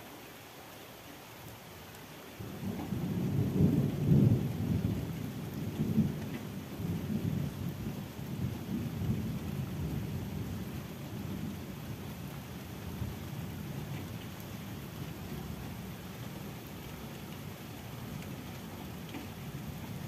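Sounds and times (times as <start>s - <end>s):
steady rain: 0.0s - 20.0s
rolling thunder: 2.6s - 11.5s.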